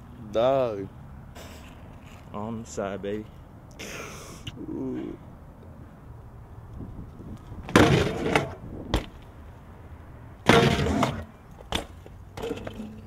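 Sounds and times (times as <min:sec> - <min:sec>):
bike clattering on concrete: 0:07.6 - 0:09.2, 0:10.4 - 0:13.0.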